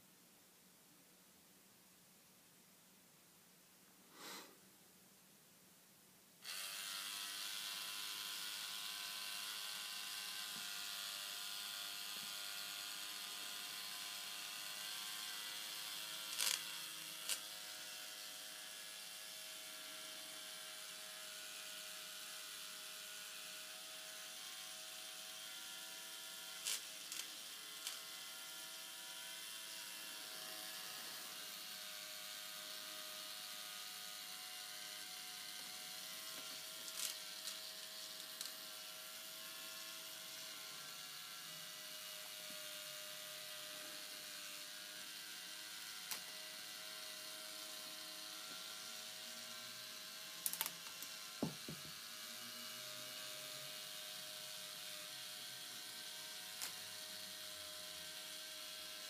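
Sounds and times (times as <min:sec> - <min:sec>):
small motor whirring: 0:06.4 - 0:59.0.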